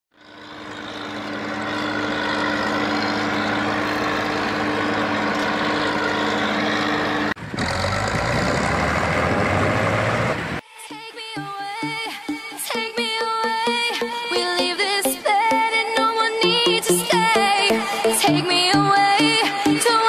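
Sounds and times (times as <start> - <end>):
combine harvester diesel engine running: 0.1 - 10.6.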